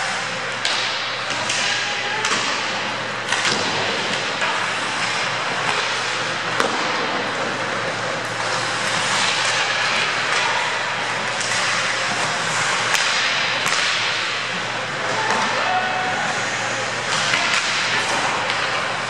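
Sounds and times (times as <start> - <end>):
stick hitting puck: 0.6 - 14.3, 17.1 - 18.9
skates scraping ice: 3.3 - 14.3.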